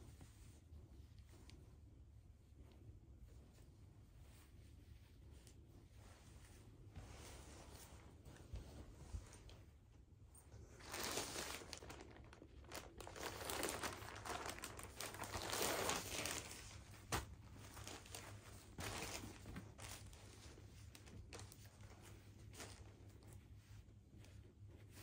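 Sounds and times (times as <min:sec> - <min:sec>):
plastic bag crinkling: 0:10.7 - 0:16.8.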